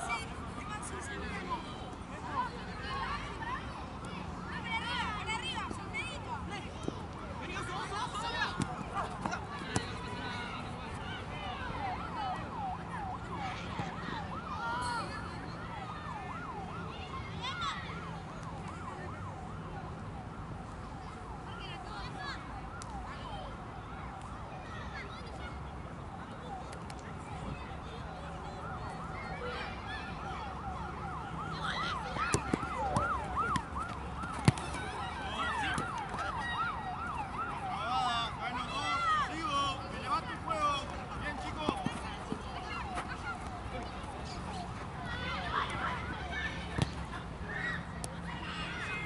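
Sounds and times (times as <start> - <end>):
electronic siren yelping: 28.7 - 39.3.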